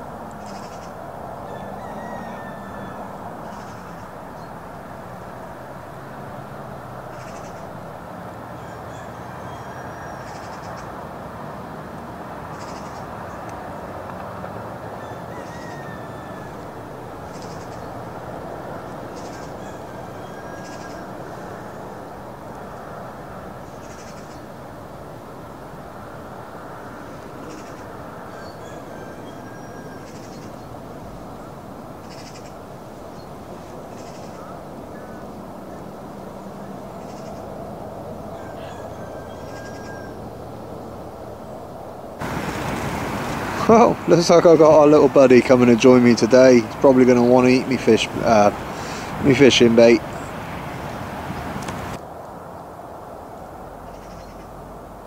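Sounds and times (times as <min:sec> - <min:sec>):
gulls calling: 0:00.0 - 0:04.7, 0:08.4 - 0:11.0, 0:12.3 - 0:24.6, 0:26.6 - 0:41.0, 0:42.2 - 0:52.0
wind buffeting microphone: 0:40.4 - 0:52.0.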